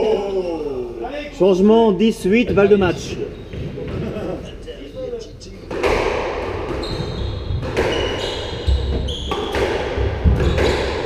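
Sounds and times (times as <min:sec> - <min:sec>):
sneaker squeaks on wooden floor: 0:02.5 - 0:03.9, 0:06.7 - 0:11.0
ball hitting court walls: 0:05.7 - 0:11.0
rackets striking rubber ball: 0:08.8 - 0:11.0.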